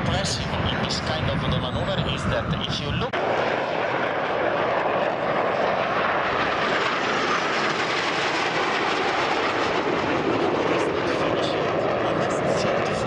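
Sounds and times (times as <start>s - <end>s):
jets flying past: 0.0s - 13.0s.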